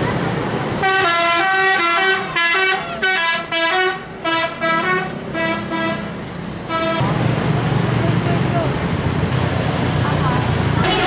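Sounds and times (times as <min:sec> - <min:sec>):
musical horn melody: 0:00.8 - 0:06.1, 0:06.7 - 0:07.1.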